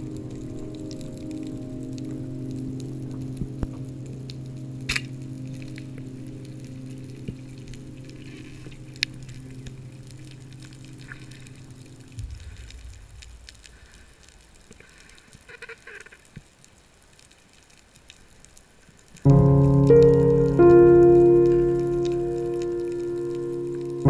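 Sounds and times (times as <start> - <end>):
steady hum: 0.0 - 14.6
water noise: 0.0 - 16.1, 19.2 - 24.0
faint crackles and clicks: 0.0 - 24.0
low rumble: 12.0 - 14.8.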